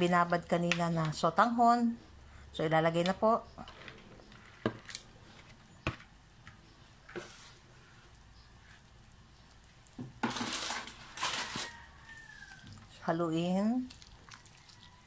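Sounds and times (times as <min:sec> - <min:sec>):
soft wet sounds: 0:07.4 - 0:10.0, 0:11.9 - 0:15.0
loud scraping rustle: 0:10.2 - 0:11.8.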